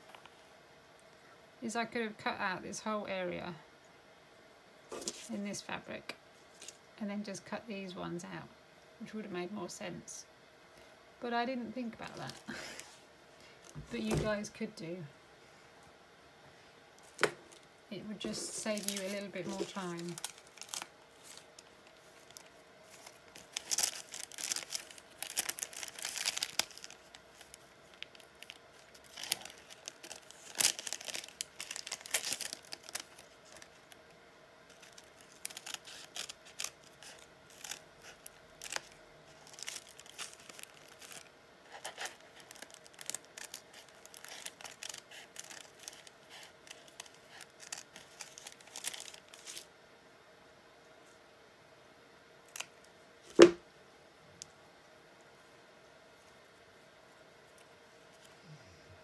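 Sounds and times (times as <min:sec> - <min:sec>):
paper and fabric rustling: 0:04.9 - 0:05.4, 0:18.2 - 0:33.9, 0:34.7 - 0:49.6.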